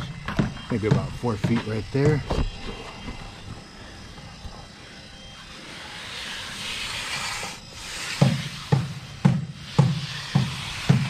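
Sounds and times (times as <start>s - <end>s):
trowel scraping wet cement: 5.8s - 11.0s.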